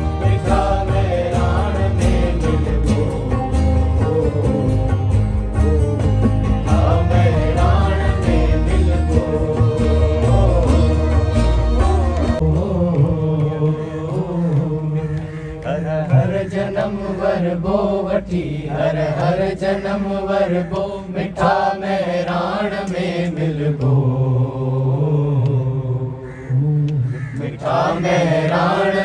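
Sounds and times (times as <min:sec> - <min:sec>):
person singing chant-like: 0:06.6 - 0:29.0.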